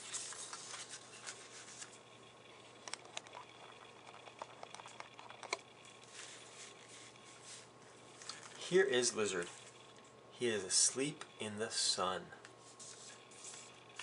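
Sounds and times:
fingers rustling paper pages: 0.0 - 2.0
low room hiss: 0.0 - 14.0.

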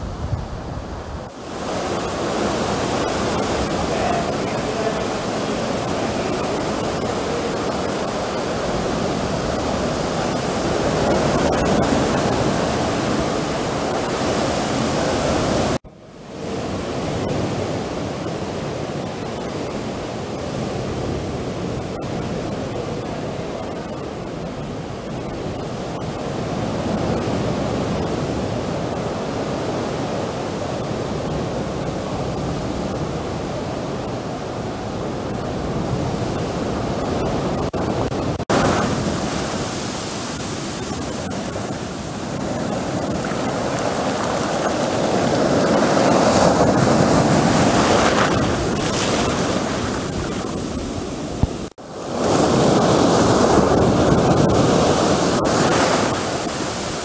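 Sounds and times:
sea surf breaking on shore: 0.0 - 57.0.

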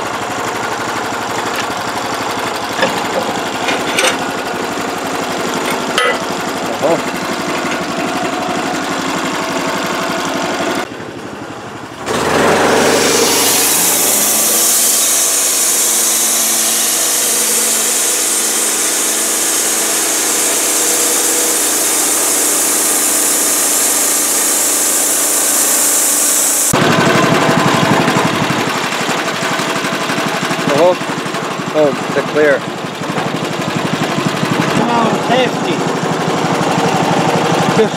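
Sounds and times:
engine idling and revving: 0.0 - 37.9
band blade sawing log: 12.1 - 23.3.

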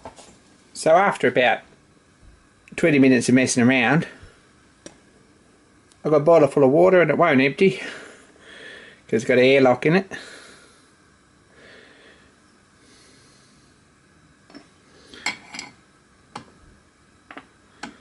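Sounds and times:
faint breathy hiss: 3.2 - 4.6, 7.7 - 9.2, 10.0 - 14.0.

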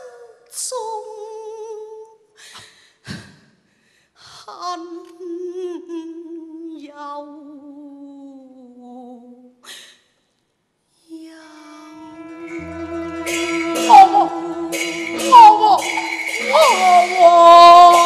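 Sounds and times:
woman singing opera melody: 11.1 - 18.0.

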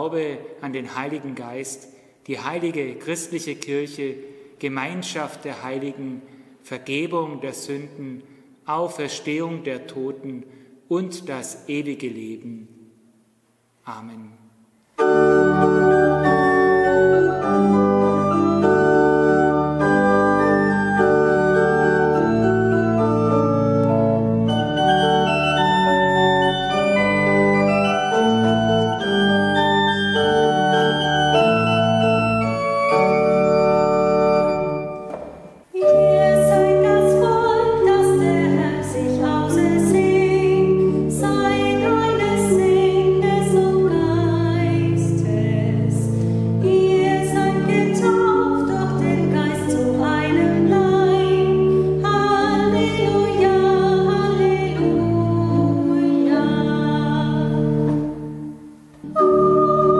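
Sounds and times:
pipe organ playing held chords: 15.0 - 43.2, 57.3 - 59.9
woman singing a hymn: 35.8 - 58.1, 59.0 - 59.9.

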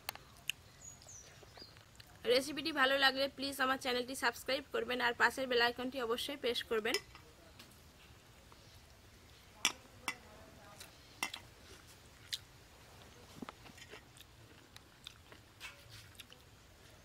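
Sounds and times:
person chewing: 0.1 - 2.2, 10.8 - 16.5.

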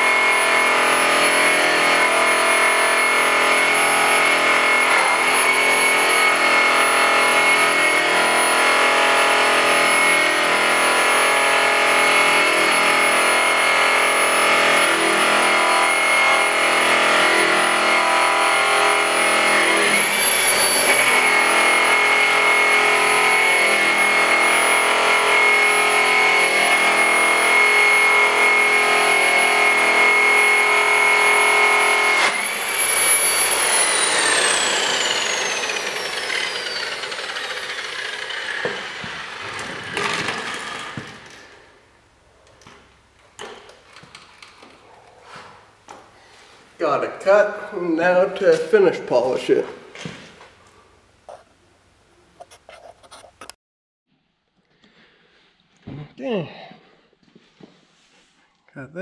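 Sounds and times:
electric polisher motor whining: 0.0 - 41.7.

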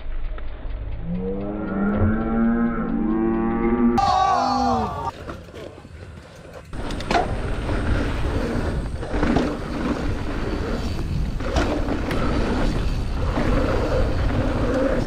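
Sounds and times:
tyres running over dirt: 5.0 - 15.0
bike clacking over bumps: 5.1 - 15.0
wind buffeting microphone: 6.8 - 15.0.

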